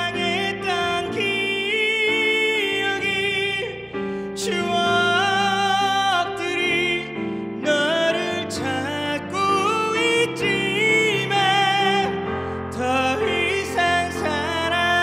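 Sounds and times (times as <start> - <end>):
man singing a ballad: 0.0 - 15.0.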